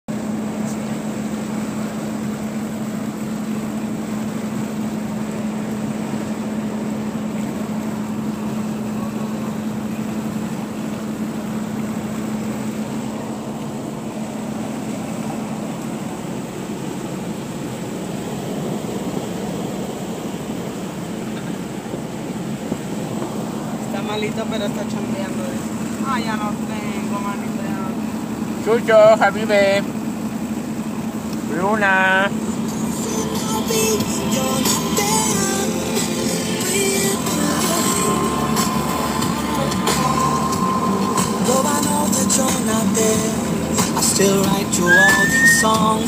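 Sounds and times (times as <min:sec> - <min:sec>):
road and engine noise: 0:00.0 - 0:46.0
constant low hum: 0:00.1 - 0:46.0.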